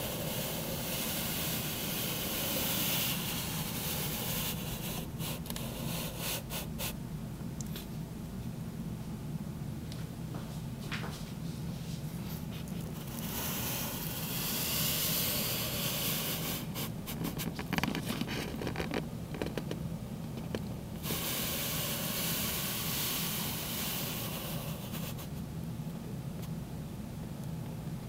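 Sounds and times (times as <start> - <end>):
steady hiss: 0.0 - 7.1, 11.1 - 19.8, 20.4 - 25.6.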